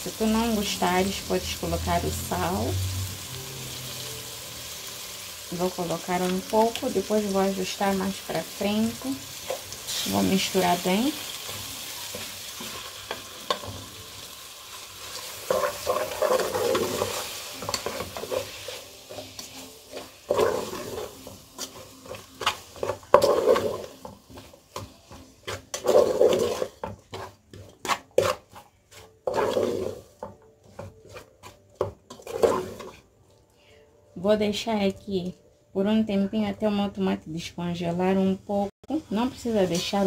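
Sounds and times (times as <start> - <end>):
vegetables sizzling: 0.0 - 33.4, 38.9 - 40.0
wooden spoon scraping a pot: 6.3 - 14.1, 14.7 - 33.4.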